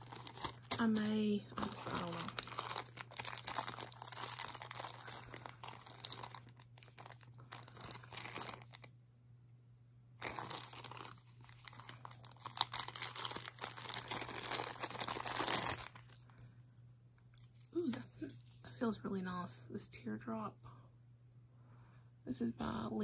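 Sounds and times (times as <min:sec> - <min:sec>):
plastic bag crinkling: 0:00.0 - 0:08.9, 0:10.2 - 0:16.3.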